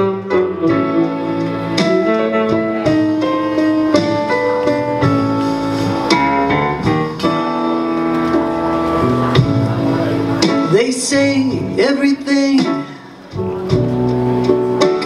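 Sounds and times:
instrumental music with held chords: 0.0s - 15.0s.

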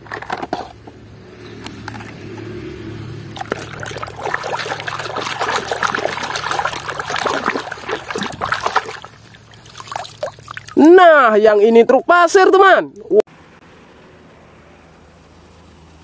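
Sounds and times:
water splashing and sloshing: 1.4s - 11.0s.

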